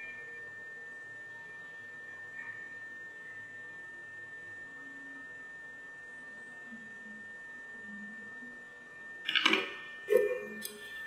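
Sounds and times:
tools clattering: 0:09.3 - 0:09.8
high pure tone: 0:09.3 - 0:11.0.

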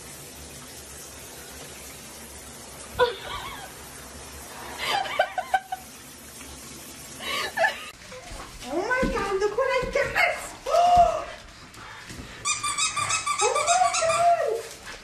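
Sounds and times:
person laughing: 0:03.0 - 0:03.7, 0:04.8 - 0:05.9.

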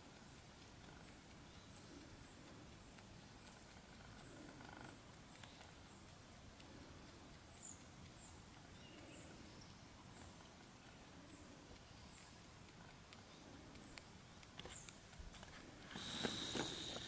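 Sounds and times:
rabbit chewing stems: 0:00.0 - 0:17.0.

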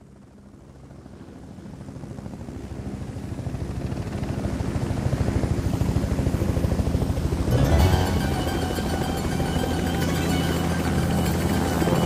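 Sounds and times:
helicopter rotor beating: 0:03.5 - 0:12.0.

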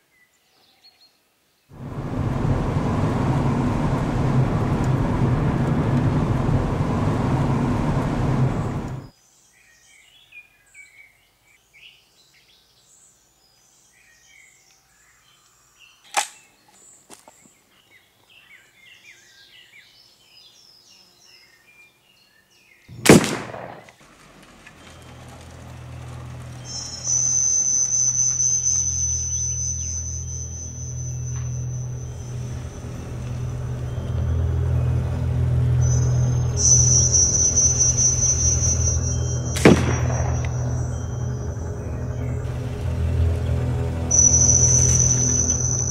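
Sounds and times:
car road and engine noise: 0:01.8 - 0:09.1, 0:22.9 - 0:45.9
birdsong: 0:02.0 - 0:45.9
gunshots: 0:22.9 - 0:24.9, 0:39.6 - 0:41.3.

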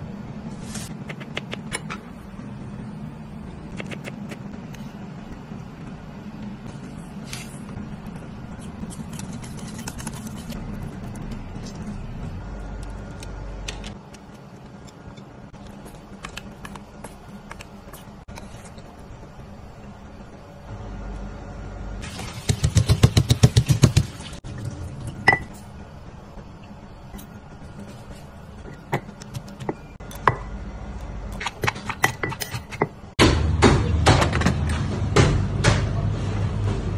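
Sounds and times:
steady low hum: 0:00.0 - 0:22.0, 0:24.4 - 0:36.9
cutlery clinking in metal bowl: 0:31.4 - 0:32.9.

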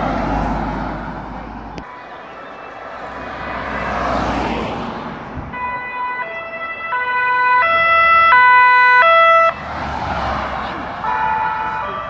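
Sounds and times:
passing vehicle rush: 0:00.0 - 0:12.0
two-tone police siren: 0:00.8 - 0:12.0.

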